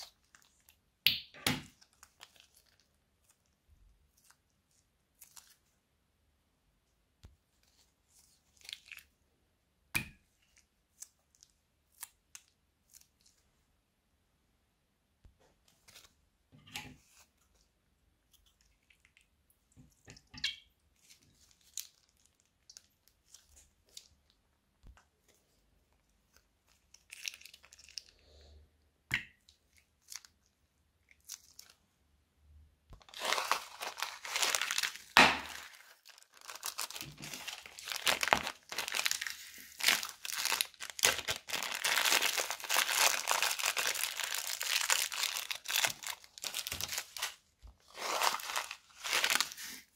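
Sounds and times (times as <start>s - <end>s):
plastic packet crinkling and tearing: 1.7s - 3.5s, 21.1s - 24.4s, 26.3s - 28.1s, 30.0s - 31.8s, 33.0s - 49.9s
plastic bags rustling: 33.0s - 49.9s.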